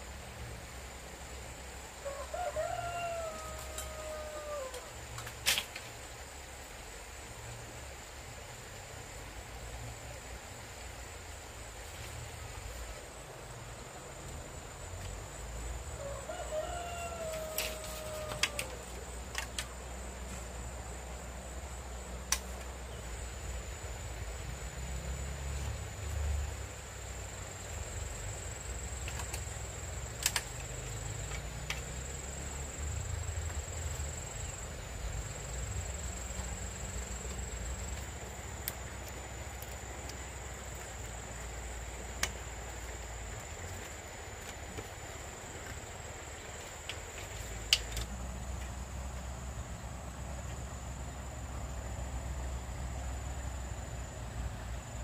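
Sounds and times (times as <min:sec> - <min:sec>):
rooster crowing: 0:02.0 - 0:04.9, 0:15.9 - 0:18.9.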